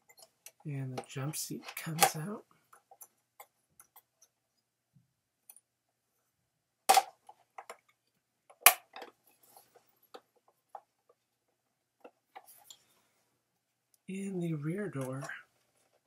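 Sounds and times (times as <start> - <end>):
plastic toy parts handled: 0.0 - 4.4, 6.9 - 11.2, 15.0 - 16.0.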